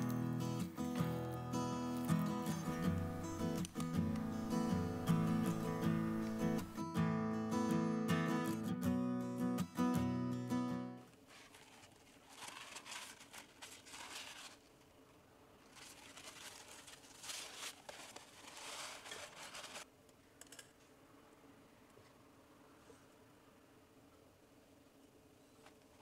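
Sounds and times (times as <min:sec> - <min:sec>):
paper towel rustling: 0:11.2 - 0:14.8, 0:15.6 - 0:19.9.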